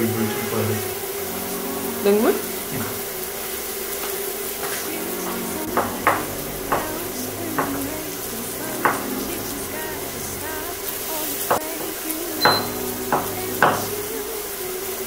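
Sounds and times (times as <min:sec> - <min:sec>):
vegetables sizzling in a frying pan: 0:00.0 - 0:15.0
knife knocking on cutting board: 0:12.5 - 0:13.9.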